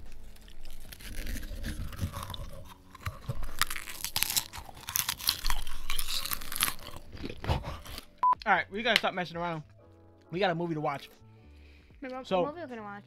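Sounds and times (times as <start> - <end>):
popcorn crunching: 0.0 - 8.2.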